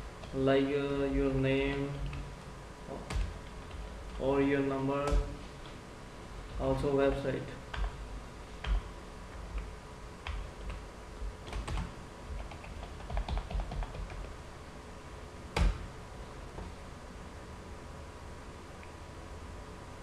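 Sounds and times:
keyboard typing: 7.7 - 8.0, 8.6 - 8.9, 9.5 - 10.8, 11.4 - 14.3.

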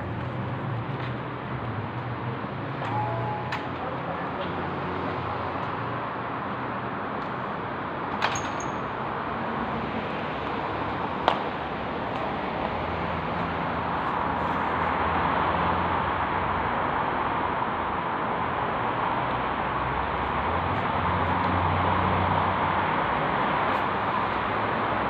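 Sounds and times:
city street traffic: 0.0 - 25.0.

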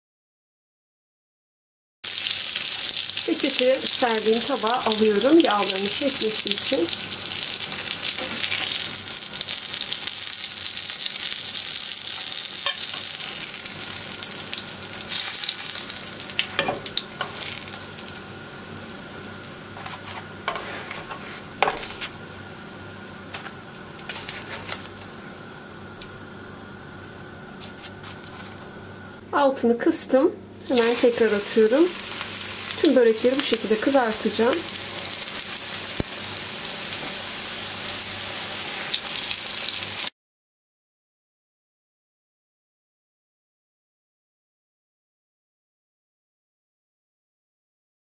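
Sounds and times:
hot oil sizzling: 2.0 - 29.2, 30.6 - 40.1.

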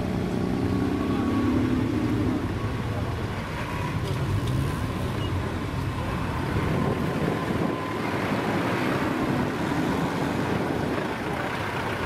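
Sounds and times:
off-road vehicle engine running: 0.0 - 12.0
wind noise on microphone: 5.8 - 12.0.

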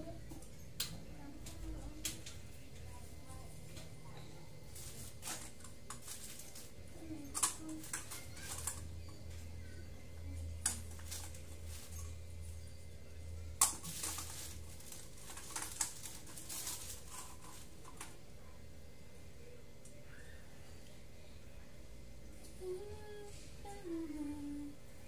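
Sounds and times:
plastic bag rustling: 4.7 - 8.8, 10.8 - 12.2, 13.7 - 18.1
low hum: 6.1 - 25.0.

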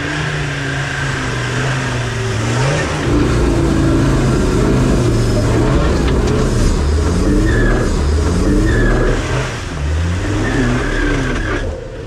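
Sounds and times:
vehicle engine pulling hard: 0.0 - 12.0.

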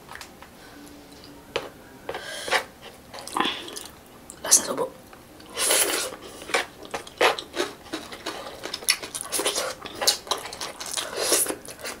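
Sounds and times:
chewing: 5.4 - 12.0
crisp crackles of food: 5.5 - 12.0.

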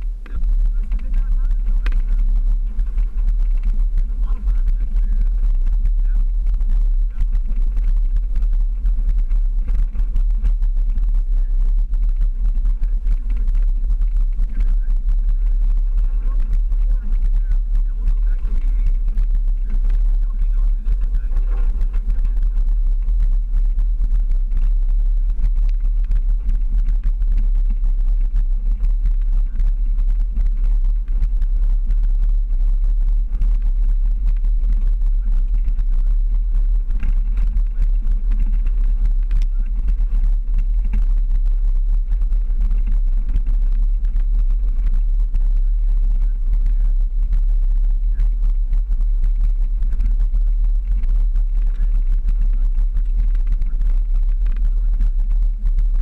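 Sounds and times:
engine rumble: 0.0 - 56.0
tires on gravel trail: 0.0 - 56.0
wind buffeting on microphone: 0.0 - 56.0.

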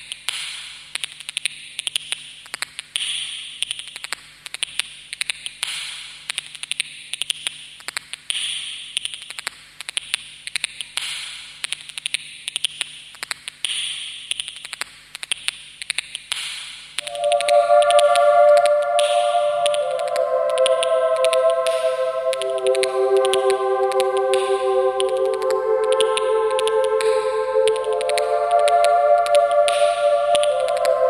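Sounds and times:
hissing swell: 17.0 - 31.0.

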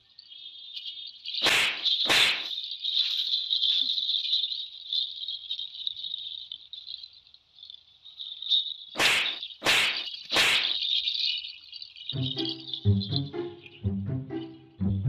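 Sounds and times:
high insect trill: 0.0 - 15.0
swishing whacks: 1.4 - 2.5, 9.0 - 10.8.

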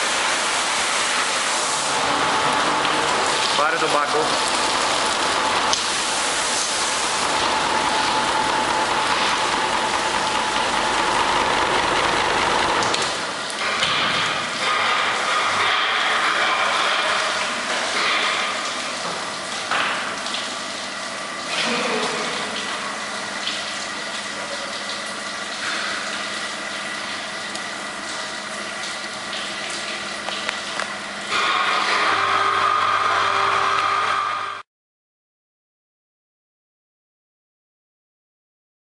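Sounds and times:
low machine hum: 0.0 - 15.4
water spraying onto rug: 0.0 - 19.6
carpet washing machine running: 0.0 - 34.6.

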